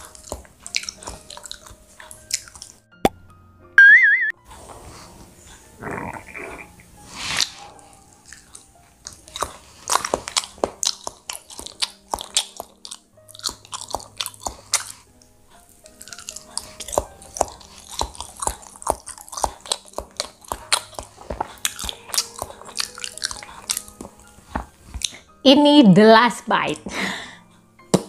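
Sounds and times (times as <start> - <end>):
person chewing bread: 0.0 - 2.9, 6.1 - 25.4
faint background music: 0.0 - 28.0.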